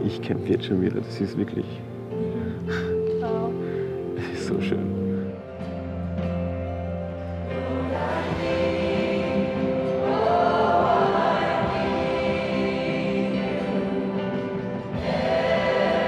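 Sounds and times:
choir singing worship song: 7.0 - 16.0.

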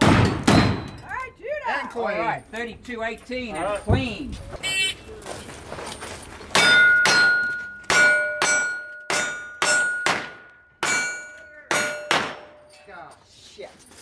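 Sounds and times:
steel plate ringing: 6.6 - 12.8.

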